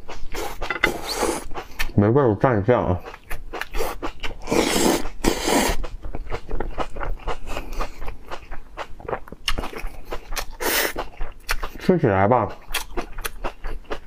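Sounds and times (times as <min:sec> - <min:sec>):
crunching and chewing baby corn: 0:03.0 - 0:14.0.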